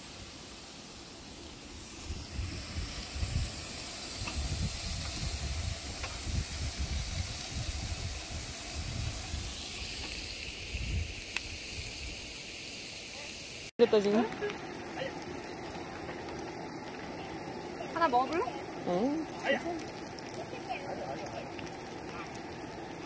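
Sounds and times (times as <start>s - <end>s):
meat sizzling on a grill: 0.0s - 23.0s
wind buffeting microphone: 2.0s - 9.6s, 10.7s - 11.2s.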